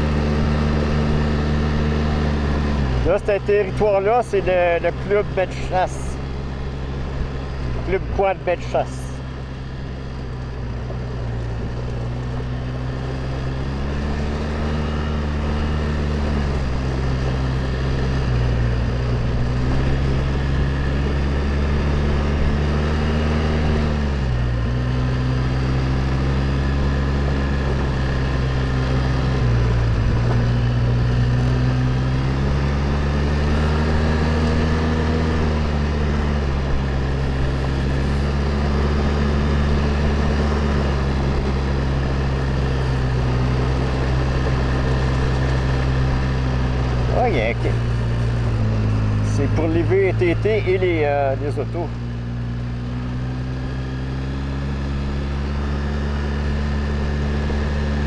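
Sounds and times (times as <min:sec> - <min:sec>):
quad bike engine revving: 0:00.0 - 0:58.0.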